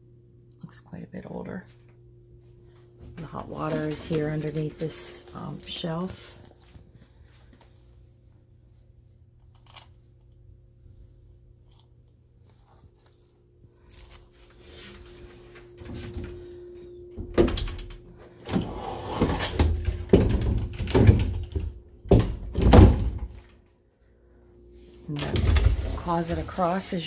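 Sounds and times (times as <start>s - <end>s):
faint steady hum: 0.0s - 27.0s
closet door knocks and rattles: 19.6s - 23.4s.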